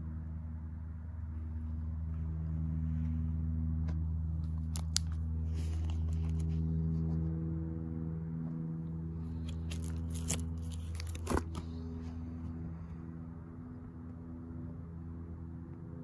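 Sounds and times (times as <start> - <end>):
steady low hum: 0.0 - 16.0
plastic sleeves crinkling: 4.5 - 6.6, 9.4 - 11.6.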